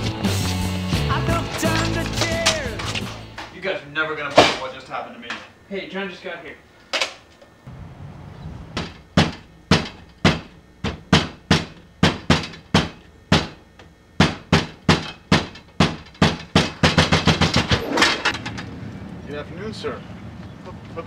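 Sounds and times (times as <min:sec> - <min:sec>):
knocking on a door: 0:08.8 - 0:13.6, 0:14.2 - 0:17.7.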